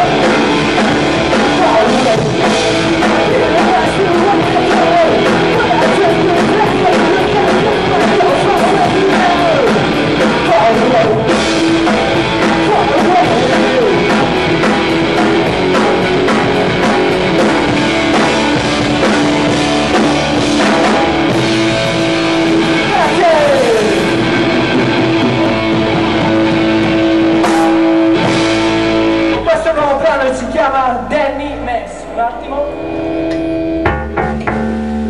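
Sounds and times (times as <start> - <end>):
man singing: 0.0 - 17.6, 22.6 - 24.3
drum-kit beat: 0.0 - 31.6, 33.1 - 35.0
distorted electric guitars: 0.0 - 35.0.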